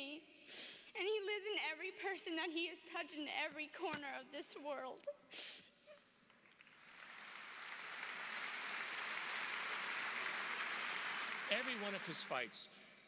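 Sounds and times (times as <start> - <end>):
large crowd applauding: 6.5 - 12.7.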